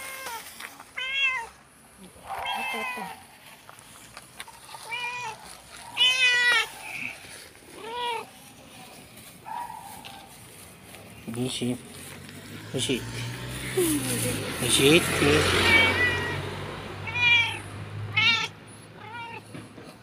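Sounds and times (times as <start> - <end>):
cat meowing: 0.0 - 1.6, 2.2 - 3.2, 4.8 - 8.4, 15.3 - 19.6.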